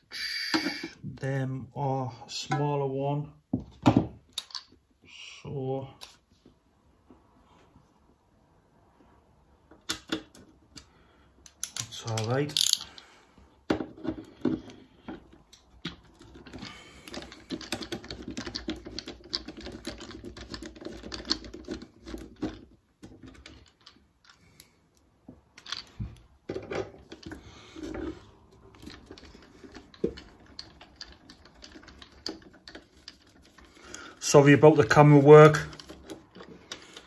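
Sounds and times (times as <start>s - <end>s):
screwdriver clicking and scraping: 11.5s - 12.9s.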